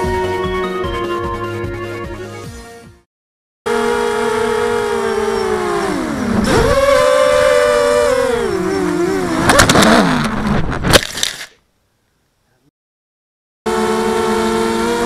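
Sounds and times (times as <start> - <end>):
quadcopter motors whining: 3.7 - 10.0, 13.7 - 15.0
sharp cracks of branches: 9.4 - 11.7.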